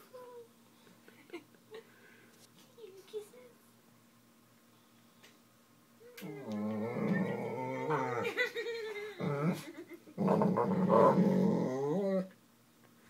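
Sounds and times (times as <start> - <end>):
dog growling: 6.2 - 8.4, 9.2 - 12.4.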